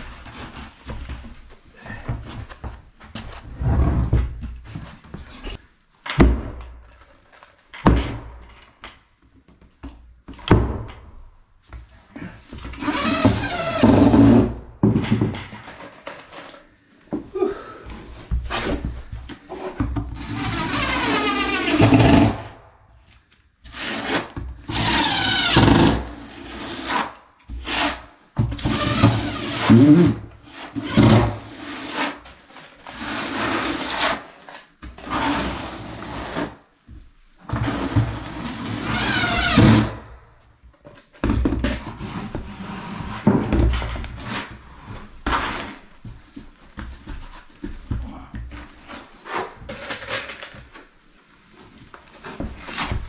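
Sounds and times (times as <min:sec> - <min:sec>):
trowel scraping mortar on concrete: 0:45.2 - 0:45.9.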